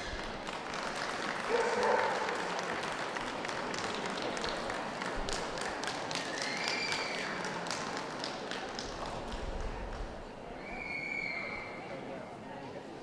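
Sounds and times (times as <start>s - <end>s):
audience clapping: 0.0s - 10.2s
hum of a busy hall: 0.0s - 13.0s.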